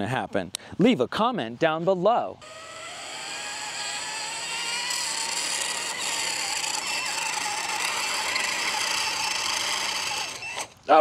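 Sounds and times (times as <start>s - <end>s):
drone propellers whining: 2.4s - 10.8s.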